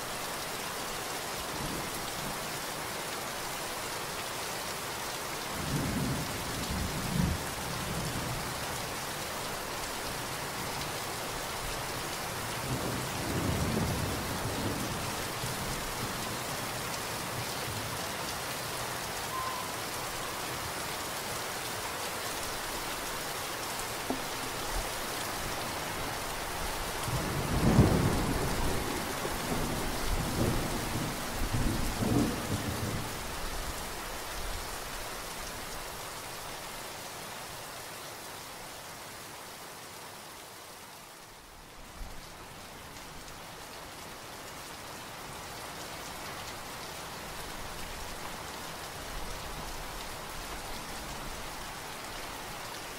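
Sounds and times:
steady rain: 0:00.0 - 0:52.9.

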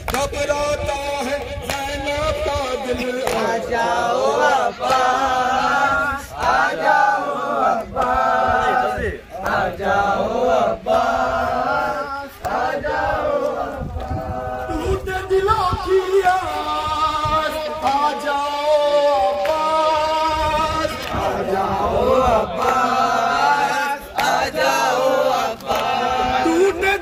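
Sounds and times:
men chanting a lament: 0:00.0 - 0:27.0
voice through a megaphone: 0:14.2 - 0:24.1.

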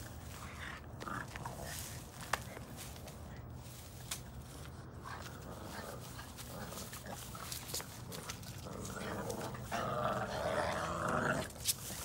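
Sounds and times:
puppies play-growling: 0:04.9 - 0:12.0.

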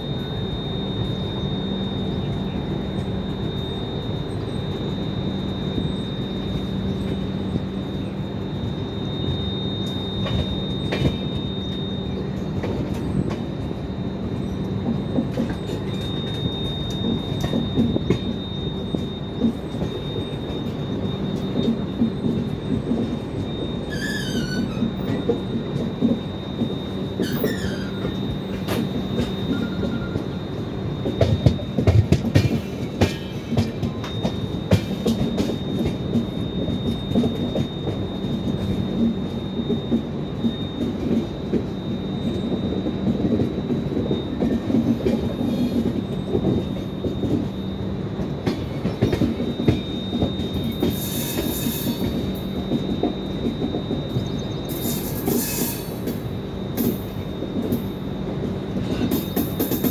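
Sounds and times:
train wheels rumbling on rails: 0:00.0 - 0:59.9
high-pitched wheel squeal: 0:15.4 - 0:25.8, 0:26.6 - 0:30.6.

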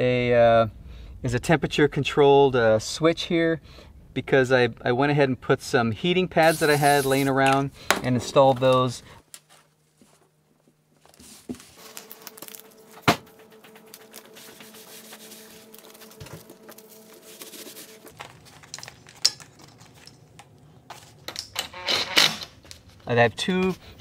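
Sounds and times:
paper crinkling and rustling: 0:11.0 - 0:21.3, 0:22.5 - 0:24.0.

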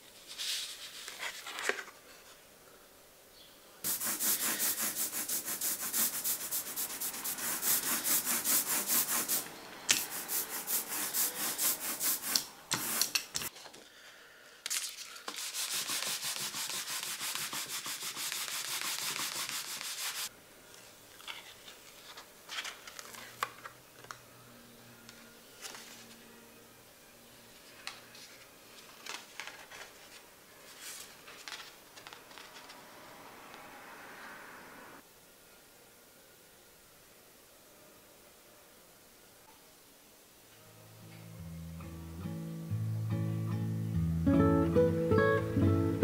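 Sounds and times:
baren rubbing over paper: 0:03.8 - 0:13.2, 0:15.4 - 0:20.3.

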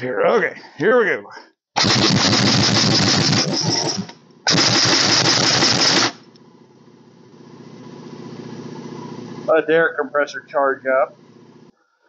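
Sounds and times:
pneumatic impact wrench hammering: 0:01.8 - 0:06.3
air compressor humming: 0:01.8 - 0:11.8.

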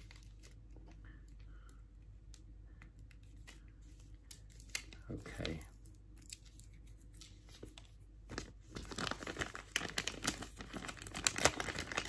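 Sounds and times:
plastic bag crinkling: 0:07.4 - 0:12.0.

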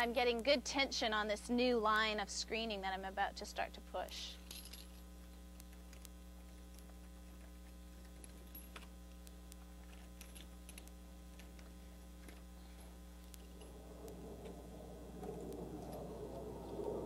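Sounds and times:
electrical mains hum: 0:00.0 - 0:17.0
rough rolling noise: 0:12.2 - 0:17.0.

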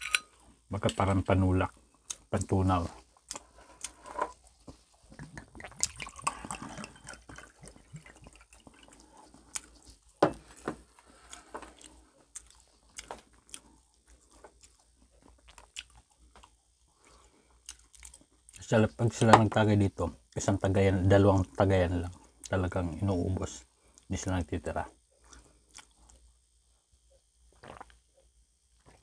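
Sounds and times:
chewing with wet mouth noises: 0:03.0 - 0:18.6, 0:25.2 - 0:26.3, 0:27.6 - 0:28.0.

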